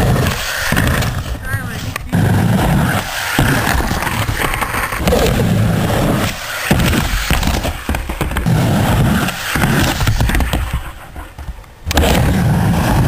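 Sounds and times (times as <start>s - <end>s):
skateboard wheels rolling: 0.0s - 13.0s
skateboard clattering on ramp: 2.2s - 12.4s.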